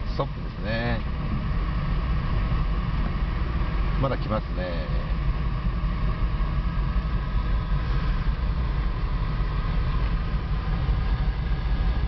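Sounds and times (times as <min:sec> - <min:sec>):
car engine low rumble: 0:00.0 - 0:12.0.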